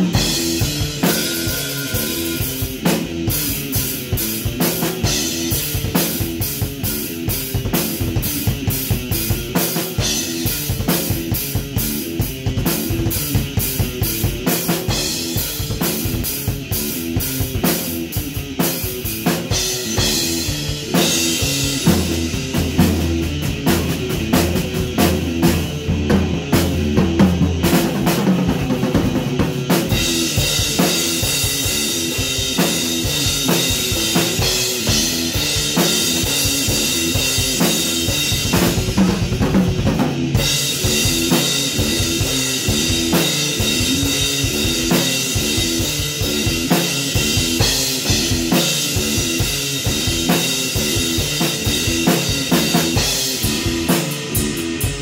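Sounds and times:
cymbals: 0.0s - 5.7s
electric guitar riff: 0.0s - 14.4s, 29.4s - 55.0s
drum kit playing driving beat: 0.0s - 55.0s.

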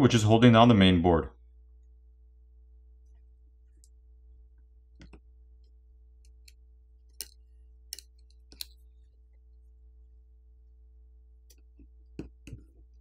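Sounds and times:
low steady hum: 0.1s - 13.0s.

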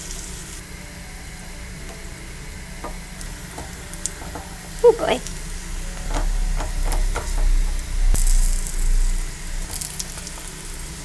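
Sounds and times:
dough frying in oil: 0.0s - 11.0s
low rumble: 0.6s - 11.0s
spatula clicking and scraping pan: 2.9s - 5.4s, 6.0s - 8.4s.

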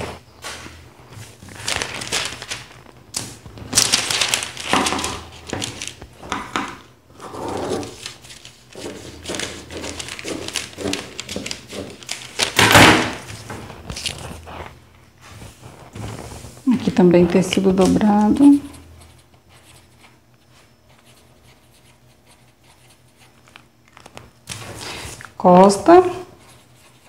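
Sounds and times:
paper rustling: 0.0s - 6.4s, 7.2s - 18.9s
scissors cutting paper: 7.8s - 12.7s, 13.3s - 14.5s.

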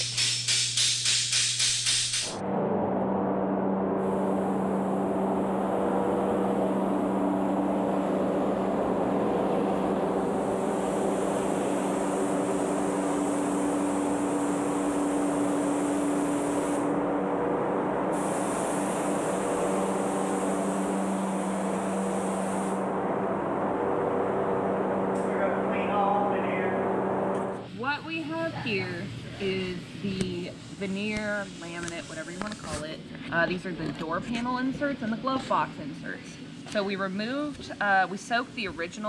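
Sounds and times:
steady low hum: 0.0s - 39.0s
paint spray gun hissing: 10.1s - 16.8s, 18.1s - 22.8s.

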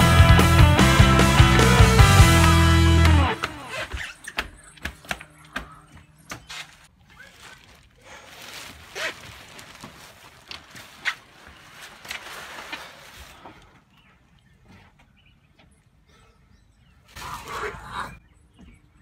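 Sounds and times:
plastic poncho crinkling: 6.5s - 13.7s.

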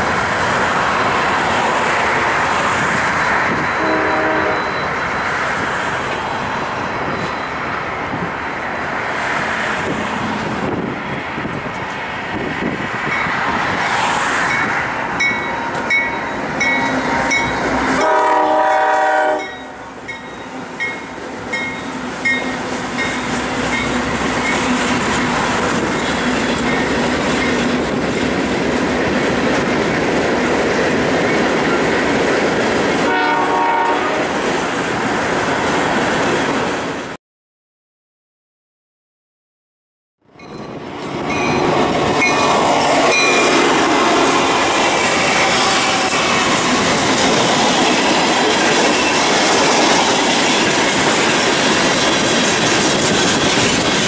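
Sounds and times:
train wheels rumbling on rails: 0.0s - 37.2s, 40.4s - 54.0s
locomotive horn: 3.5s - 4.9s, 16.7s - 20.8s, 33.0s - 34.4s, 43.1s - 46.8s
wheels clacking over rail joints: 40.4s - 54.0s.

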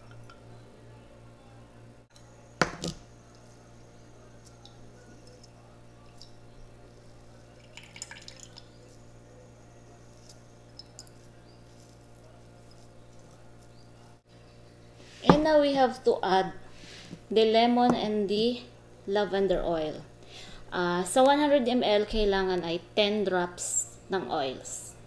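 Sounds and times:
oil dripping into glass: 7.4s - 8.9s.

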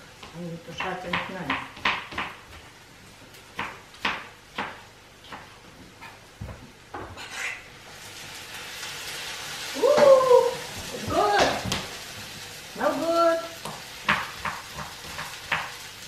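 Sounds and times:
food sizzling in a hot pan: 7.8s - 16.0s.

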